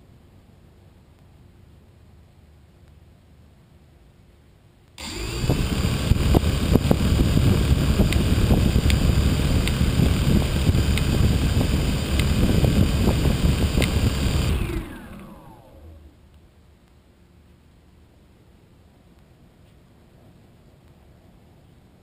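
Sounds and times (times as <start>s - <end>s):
prop wash buffeting microphone: 5.0s - 16.2s
quadcopter motors and propellers: 5.0s - 16.2s.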